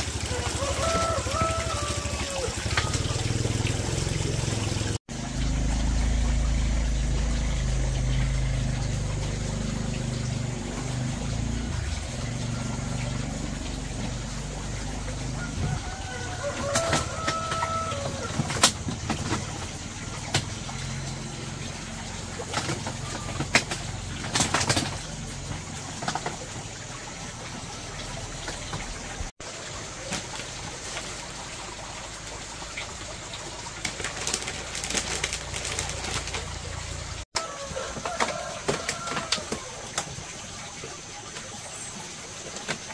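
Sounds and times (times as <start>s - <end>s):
doves cooing: 0.0s - 3.7s.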